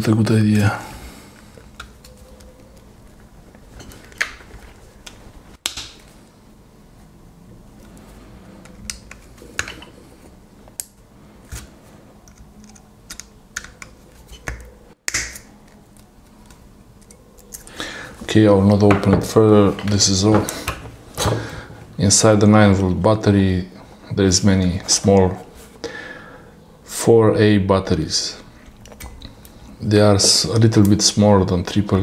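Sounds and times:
soft handling noise: 15.6s - 22.1s.

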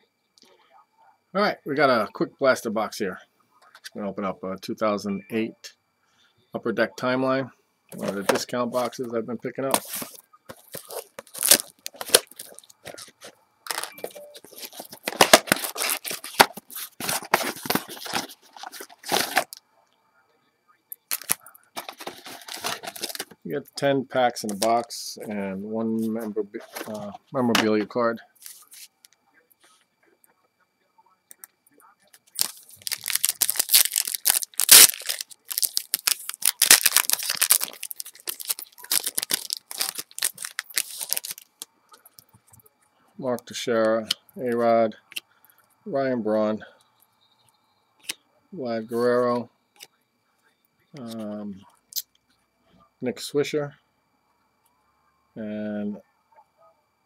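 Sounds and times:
packaging tearing and crinkling: 9.8s - 13.1s, 13.7s - 19.6s, 21.1s - 23.3s, 32.2s - 41.6s.

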